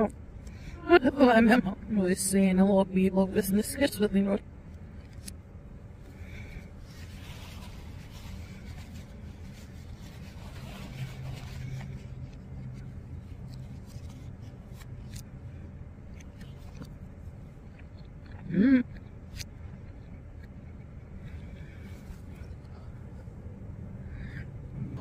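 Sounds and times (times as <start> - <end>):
steady low hum: 0.0 - 25.0
napkin rubbing plastic fork: 6.8 - 14.5
chewing: 16.1 - 21.4.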